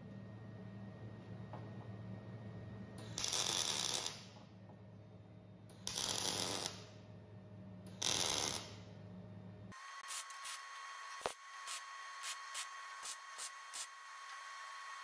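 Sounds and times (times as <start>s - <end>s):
steady low hum: 0.0s - 3.3s, 4.0s - 13.9s
arc welding crackling: 3.0s - 4.3s, 5.8s - 6.9s, 7.9s - 8.8s.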